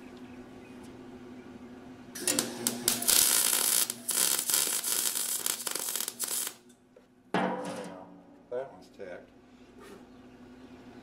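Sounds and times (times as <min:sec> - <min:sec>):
welder arc crackling: 0:02.2 - 0:06.8.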